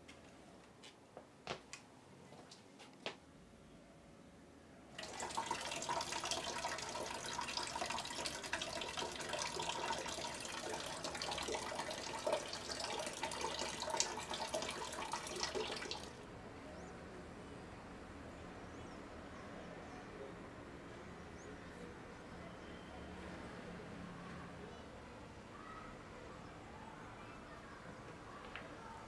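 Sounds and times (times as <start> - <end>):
tap water splashing into tub: 5.0 - 16.2.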